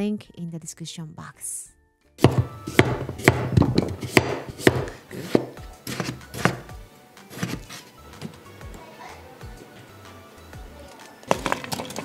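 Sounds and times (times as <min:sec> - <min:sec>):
knife knocking on cutting board: 0:02.2 - 0:06.6.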